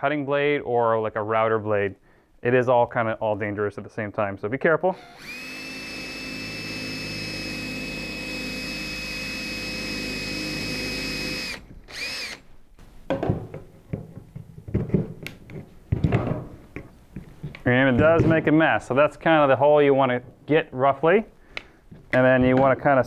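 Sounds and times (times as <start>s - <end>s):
cordless drill whining: 5.0s - 12.5s.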